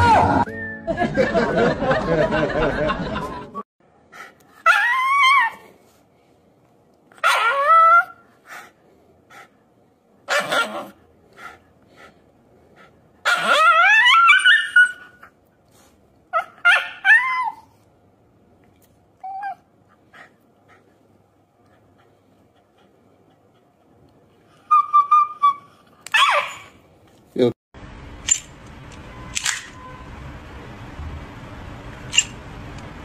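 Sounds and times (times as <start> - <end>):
dog screaming: 7.2 - 8.2, 10.3 - 11.0, 13.2 - 15.2, 16.4 - 17.6, 24.7 - 26.8.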